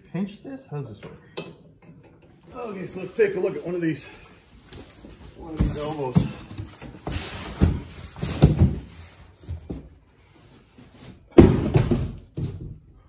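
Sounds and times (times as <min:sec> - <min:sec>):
cardboard box rustling: 0:04.8 - 0:10.0
knocks on cardboard box: 0:11.4 - 0:12.8.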